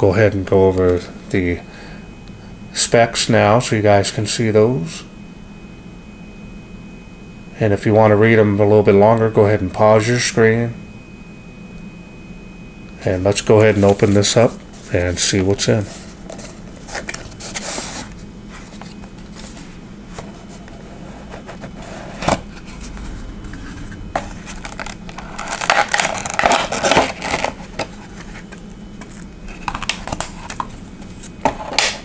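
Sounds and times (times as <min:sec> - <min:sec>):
cardboard and plastic rustling: 0:13.6 - 0:32.0.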